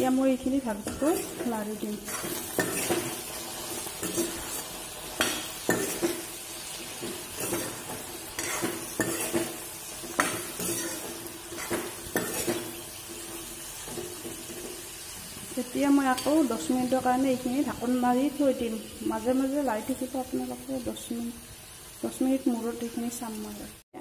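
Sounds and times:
low sizzle of frying: 0.0s - 24.0s
metal spoon scraping pan: 0.8s - 15.0s.

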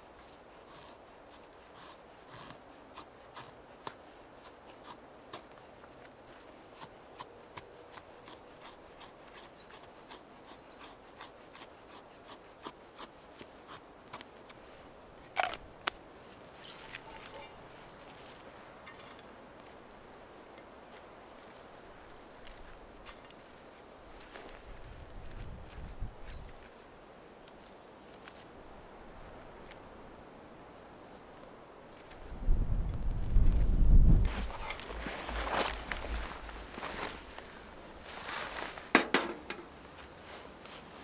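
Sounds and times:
knife scraping wood: 6.8s - 14.6s
small bird chirping: 7.2s - 11.2s.

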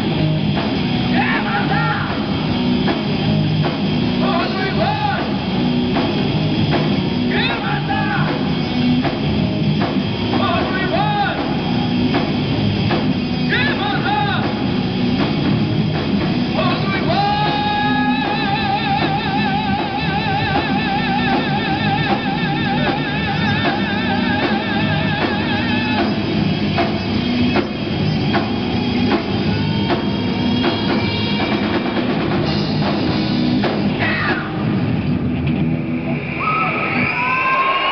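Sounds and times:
rock band playing loud: 0.0s - 37.9s.

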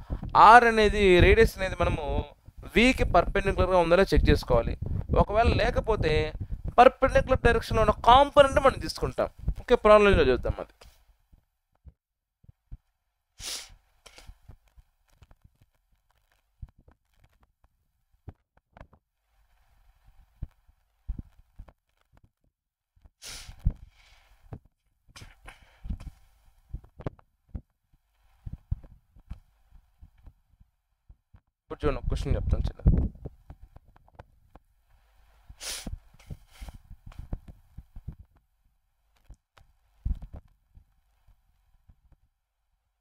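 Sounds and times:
rustling noise: 0.0s - 11.5s, 12.4s - 22.4s, 23.0s - 31.4s, 32.2s - 42.3s
short breathy hiss: 13.4s - 14.4s, 23.2s - 24.5s, 25.2s - 26.6s, 34.9s - 36.9s
faint clicks and taps: 14.1s - 19.0s, 20.2s - 31.5s, 32.4s - 34.7s, 39.1s - 42.3s.

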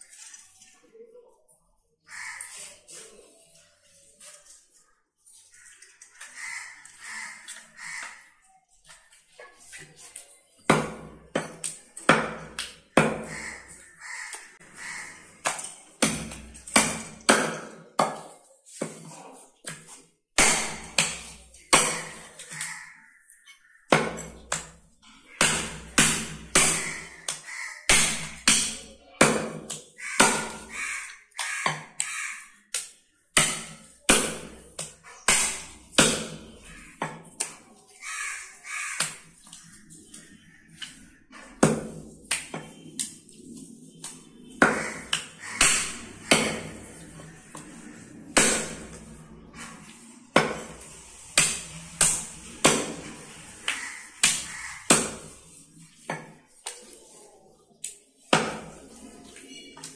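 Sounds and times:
cleaver chopping meat and bone: 10.7s - 13.6s, 15.4s - 19.0s, 19.6s - 22.8s, 23.9s - 37.6s, 40.8s - 43.2s, 44.0s - 49.1s, 49.7s - 55.5s, 58.3s - 58.9s.

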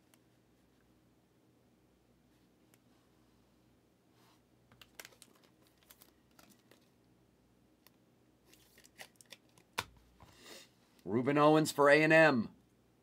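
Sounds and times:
trading cards clicking and rustling: 4.7s - 7.0s, 8.5s - 10.0s.

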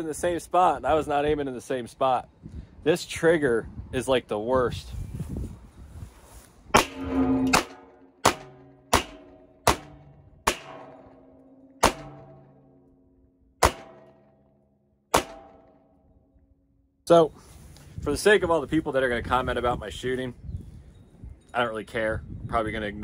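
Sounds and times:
pistol shots: 6.8s - 12.6s, 13.6s - 14.3s, 15.1s - 15.8s
metallic ring of steel drum: 6.8s - 12.9s.

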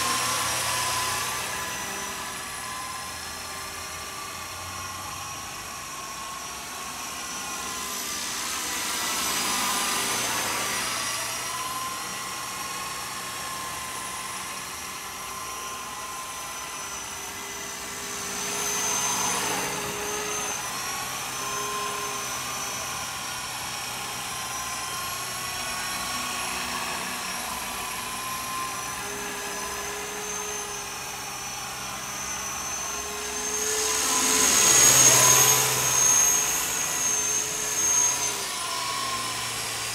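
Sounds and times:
rc helicopter rotor whine: 0.0s - 39.9s.

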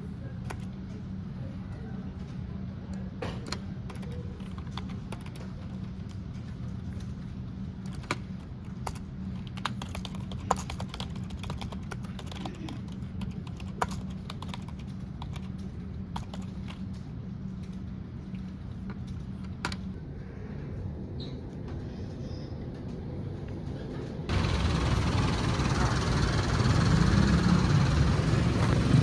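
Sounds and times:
low steady hum: 0.0s - 29.0s
keyboard typing: 3.4s - 6.1s, 7.8s - 16.9s.

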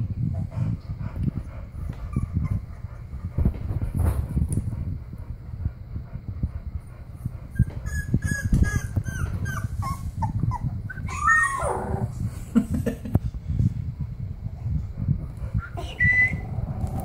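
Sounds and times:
puppy whimpering: 7.6s - 12.1s, 15.6s - 17.0s.

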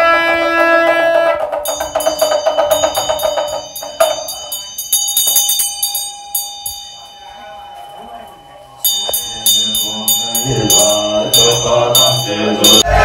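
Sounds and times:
held wind instrument note: 0.0s - 4.7s
small hand drum strokes: 0.0s - 6.9s
hand bell ringing: 1.5s - 13.0s.

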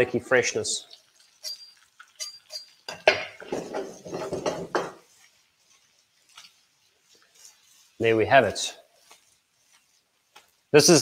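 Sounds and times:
metal spoon clinking on pan: 1.2s - 4.9s
pan scraping and rattling: 2.2s - 5.1s.

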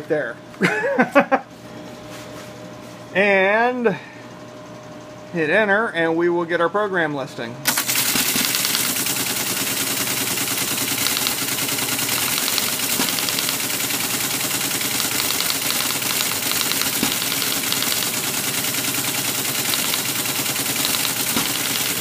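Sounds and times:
teleprinter clattering: 7.7s - 22.0s.

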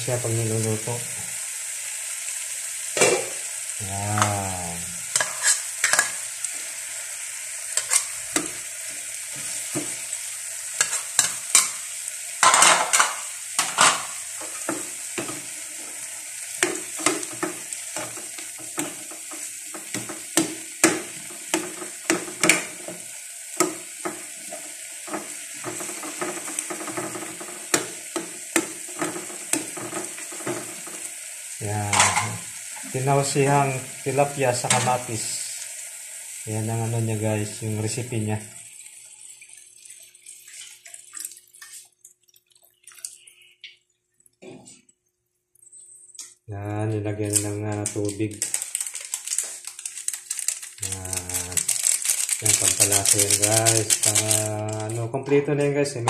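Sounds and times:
vegetables sizzling in a frying pan: 0.0s - 40.8s, 47.0s - 55.1s
metal spoon scraping a pan: 5.1s - 6.3s, 7.8s - 8.6s, 10.8s - 11.8s, 31.9s - 32.9s.

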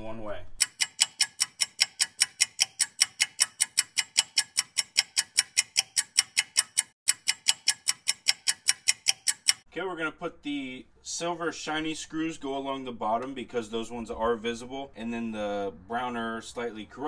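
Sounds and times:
clock-like ticking: 0.6s - 9.7s.

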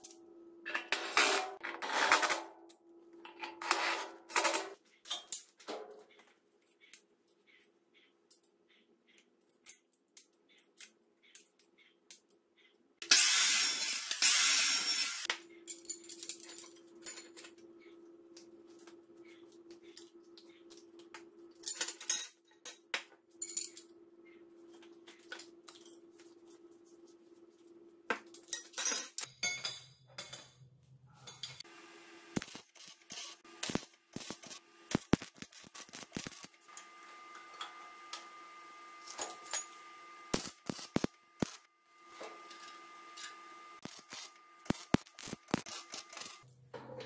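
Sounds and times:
arc welding crackle: 32.2s - 38.3s, 39.0s - 41.7s, 42.5s - 46.5s.

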